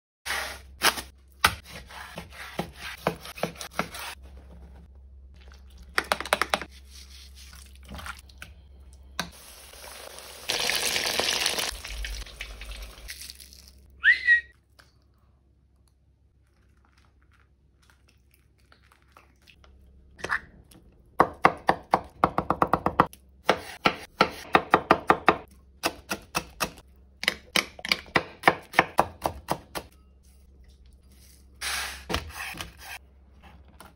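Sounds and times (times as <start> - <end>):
food crackling and crunching: 9.7 - 13.9.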